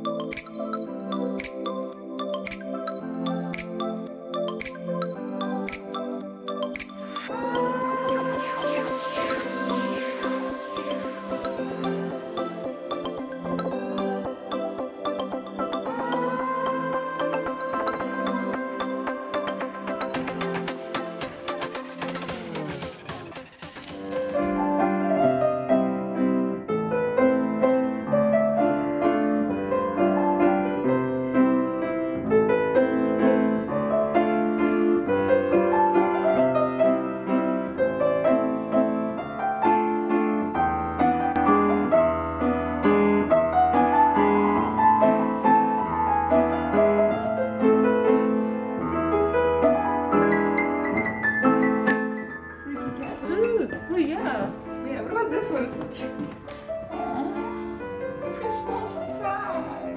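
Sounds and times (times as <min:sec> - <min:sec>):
grand piano playing: 0:00.0 - 0:59.9.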